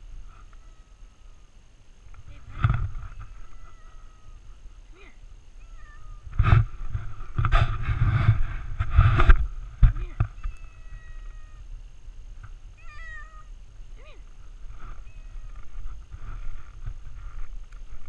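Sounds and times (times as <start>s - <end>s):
cat meowing: 3.1s - 4.4s, 5.6s - 6.3s, 10.3s - 11.7s, 12.8s - 14.2s, 15.0s - 15.6s.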